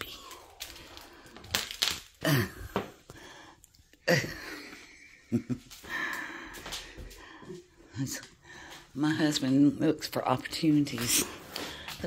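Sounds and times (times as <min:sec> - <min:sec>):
person clearing throat: 0:02.2 - 0:02.9.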